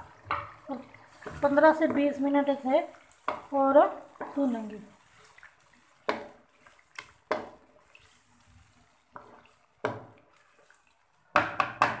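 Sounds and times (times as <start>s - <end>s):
wet gravy sounds: 0.0s - 12.0s
spatula scraping a wok: 3.0s - 9.7s.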